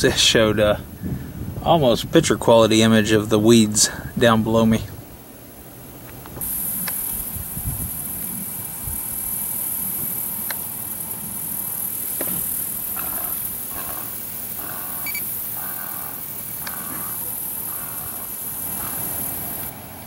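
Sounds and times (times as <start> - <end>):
sharp clicks: 6.1 - 7.2, 12.0 - 19.1
high-pitched insect chorus: 6.4 - 19.8.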